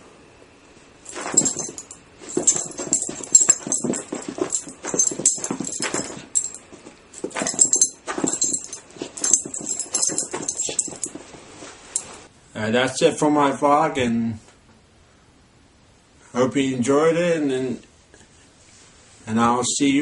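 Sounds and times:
small dog excited noises: 1.1 - 11.3.

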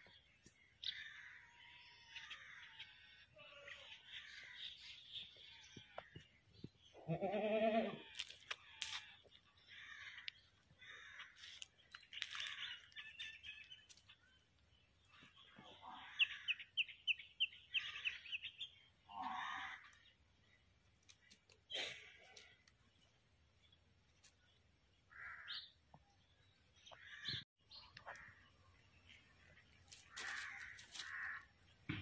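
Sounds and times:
small birds chirping: 0.0 - 32.0
goat bleating: 7.0 - 9.1.

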